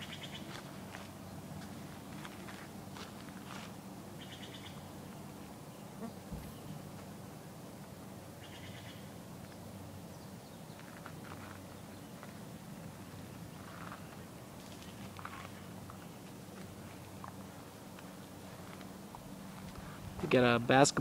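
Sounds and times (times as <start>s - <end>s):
footsteps on dirt path: 0.0s - 3.8s, 13.6s - 20.4s.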